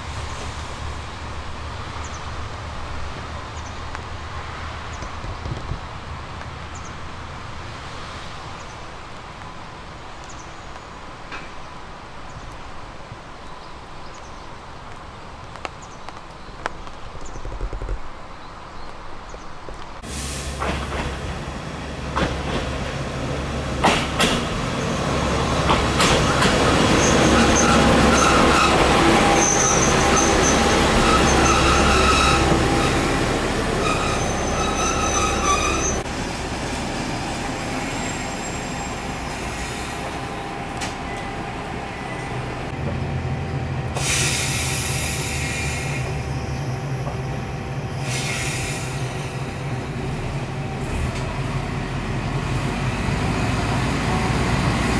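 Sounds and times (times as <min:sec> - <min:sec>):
diesel railcar engine rumble: 0:00.0 - 0:54.9
high wheel squeal: 0:26.2 - 0:36.1, 0:37.0 - 0:40.1.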